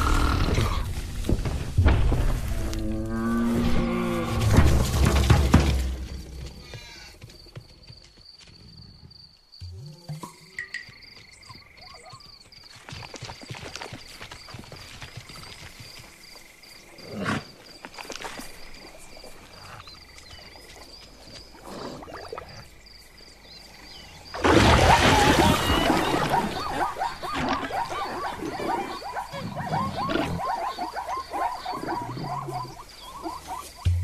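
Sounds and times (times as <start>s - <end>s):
short squealing calls: 24.7s - 34.0s.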